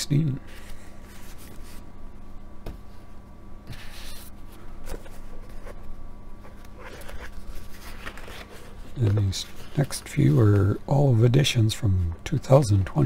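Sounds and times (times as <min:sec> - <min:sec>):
faint steady hum: 0:00.0 - 0:13.0
paper and book covers rustling: 0:00.5 - 0:01.8, 0:03.7 - 0:10.8.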